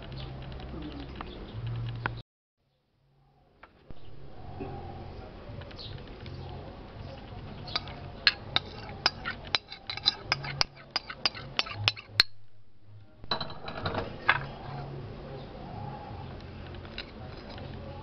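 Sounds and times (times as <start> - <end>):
steady low hum: 3.1 - 18.0
utensil clinking against dishes: 7.6 - 12.4, 13.3 - 14.9.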